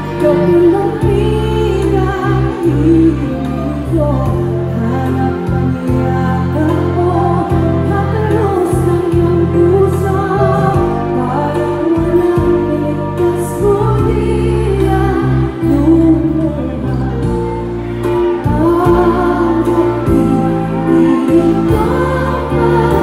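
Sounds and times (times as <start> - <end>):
band playing sustained low notes: 0.0 - 23.0
woman singing into microphone: 0.0 - 23.0
audience singing along: 7.4 - 23.0.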